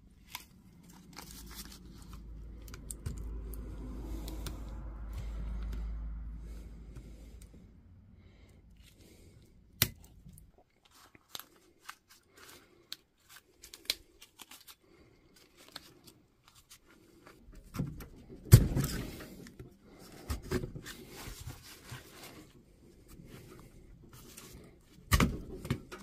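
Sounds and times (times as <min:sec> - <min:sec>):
tearing crunch: 0:09.8 - 0:17.1.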